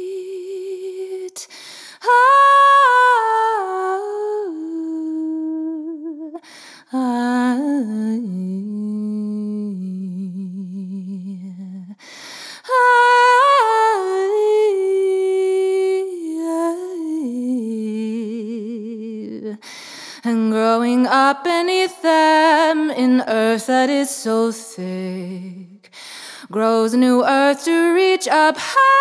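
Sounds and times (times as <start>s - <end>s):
singer breathing: 1.4s - 2.0s, 6.4s - 6.9s, 12.0s - 12.7s, 19.6s - 20.3s, 25.8s - 26.5s.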